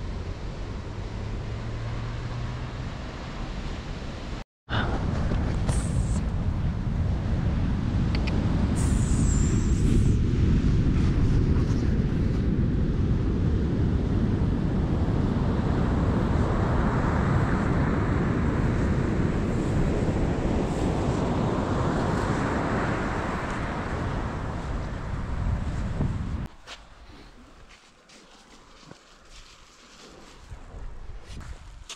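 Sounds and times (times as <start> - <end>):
wind buffeting microphone: 4.7 - 26.6.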